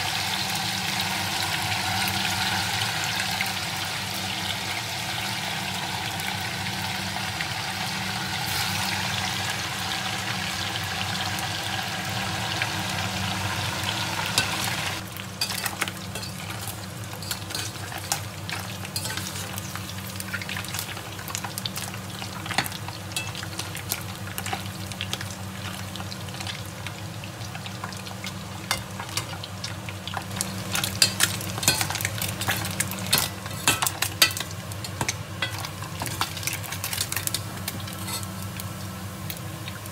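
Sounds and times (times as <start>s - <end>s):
fish sizzling in hot oil: 0.0s - 39.9s
metal skimmer scraping pot: 37.9s - 38.3s.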